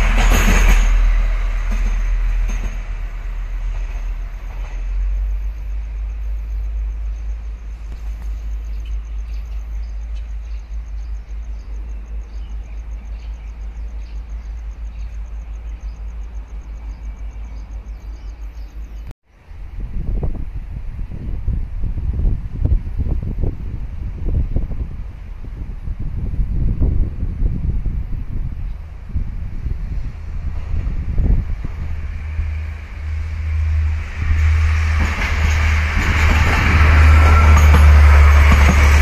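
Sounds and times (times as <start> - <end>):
rail vehicle passing rumble: 0.0 - 39.0
steady low rumble: 19.0 - 39.0.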